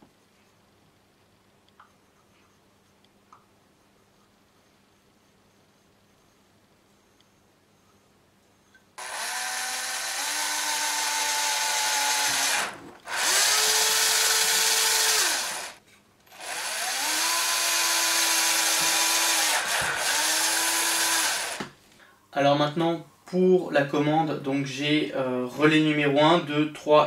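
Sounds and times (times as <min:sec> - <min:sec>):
drill boring through plastic: 0:09.0 - 0:21.8.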